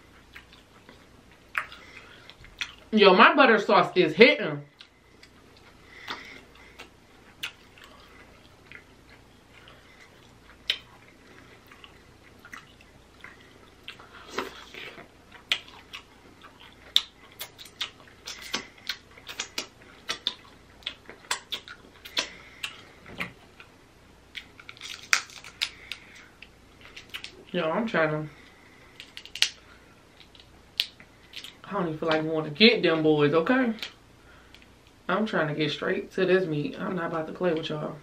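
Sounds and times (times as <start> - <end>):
wet chewing and mouth smacks: 0.1 - 2.9, 4.7 - 27.5, 28.4 - 31.7
crab shell clicks and snaps: 29.0 - 29.6.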